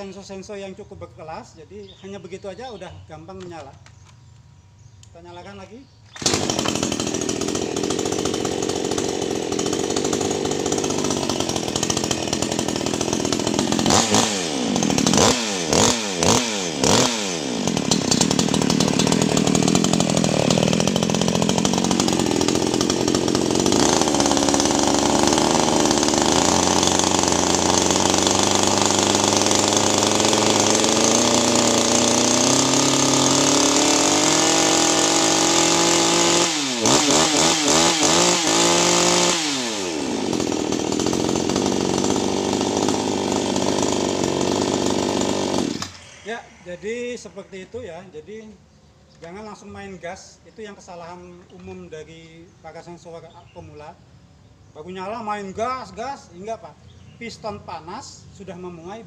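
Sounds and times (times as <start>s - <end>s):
chainsaw starting and running: 4.9s - 49.3s
chainsaw revving: 5.5s - 48.2s.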